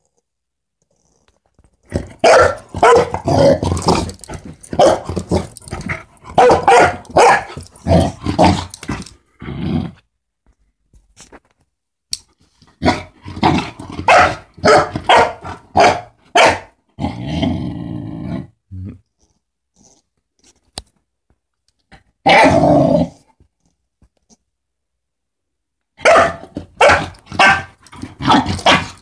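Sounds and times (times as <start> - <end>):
puppy growling: 0.9 - 10.0
puppy barking: 2.2 - 3.4, 4.7 - 5.1, 6.3 - 7.6, 14.0 - 16.7, 26.0 - 29.0.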